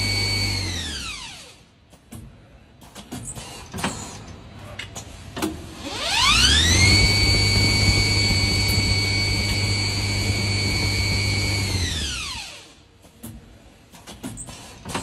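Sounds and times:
coil winding machine whine: 5.9s - 12.6s.

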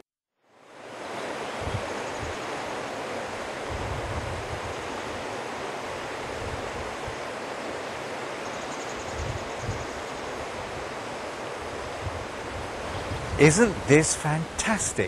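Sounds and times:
water rushing: 0.5s - 15.0s
wind buffeting microphone: 1.5s - 2.5s, 3.3s - 7.4s, 9.0s - 14.8s.

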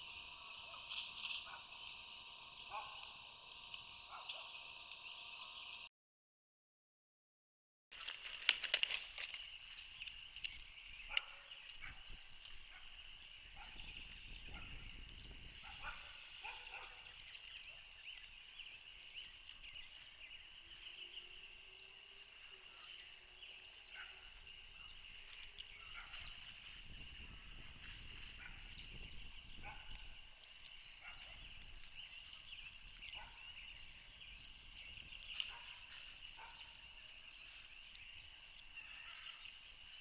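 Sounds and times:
frogs peeping: 0.0s - 5.9s.

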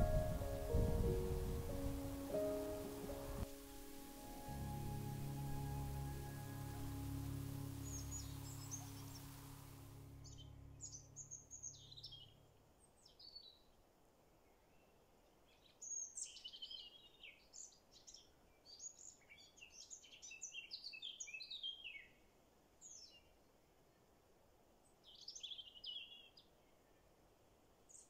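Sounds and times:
background music: 0.0s - 11.7s
songbird chirping and trilling: 0.0s - 13.8s, 14.7s - 22.2s, 22.8s - 23.3s, 25.0s - 27.0s.

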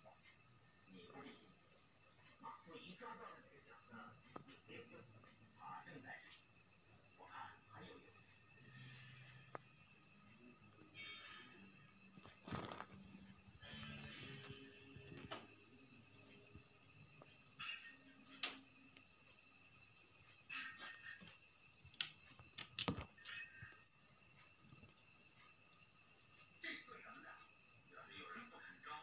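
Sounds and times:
cricket chirping: 0.0s - 29.0s
insects trilling: 0.0s - 29.0s.

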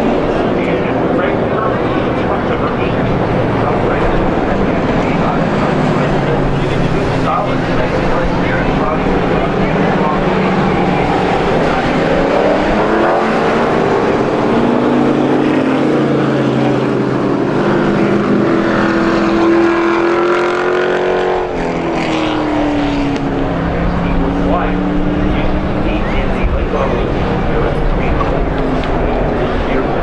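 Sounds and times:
race truck engines accelerating: 0.0s - 30.0s.

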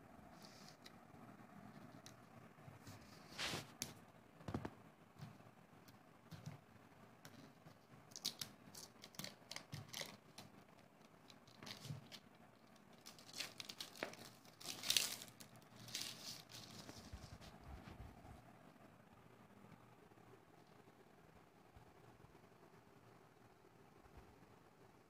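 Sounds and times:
plastic shrink-wrap tearing: 8.1s - 10.2s, 13.0s - 16.9s.

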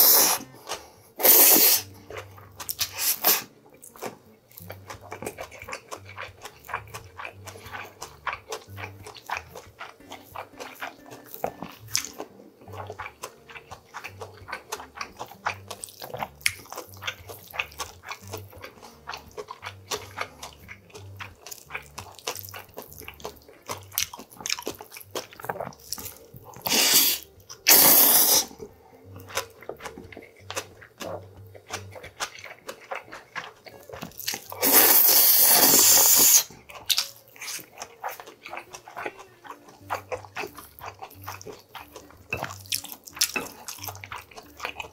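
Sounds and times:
loud noodle slurps: 0.0s - 0.5s, 1.2s - 1.9s, 2.8s - 3.5s, 26.7s - 28.6s, 34.6s - 36.5s
man chewing and smacking: 0.0s - 44.9s.

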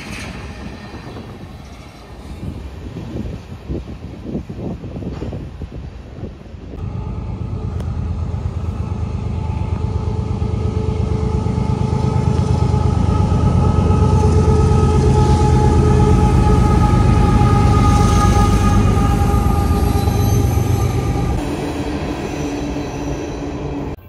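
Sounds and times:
locomotive engine rumbling: 4.8s - 24.0s
steady whine: 6.8s - 24.0s.

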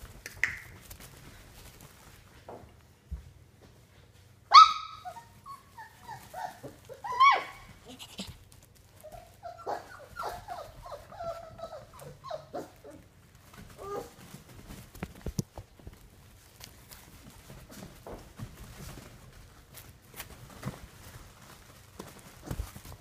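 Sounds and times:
puppies whining and yipping: 4.5s - 8.2s, 9.0s - 14.3s.

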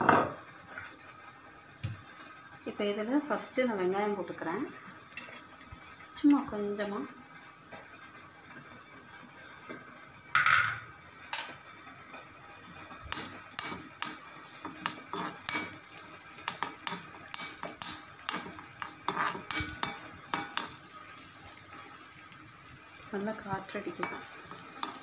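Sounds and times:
spoon scraping pan: 4.7s - 5.7s, 11.3s - 25.0s.

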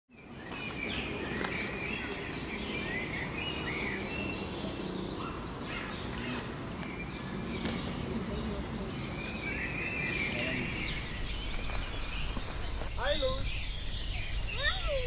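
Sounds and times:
small birds chirping: 0.1s - 15.0s.

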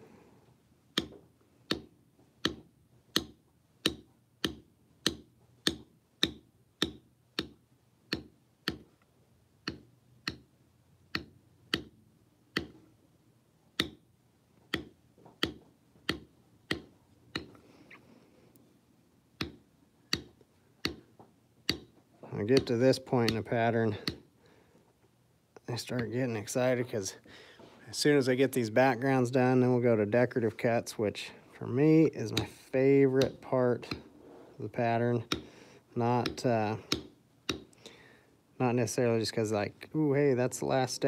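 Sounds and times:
mallet tapping leather tool: 0.9s - 9.0s, 9.6s - 12.9s, 13.7s - 17.6s, 19.4s - 24.3s, 33.2s - 34.1s, 35.1s - 37.8s.

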